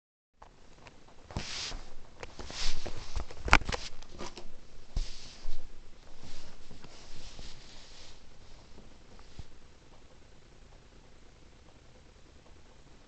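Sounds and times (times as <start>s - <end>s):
camera handling rustling and clicks: 3.1s - 4.5s.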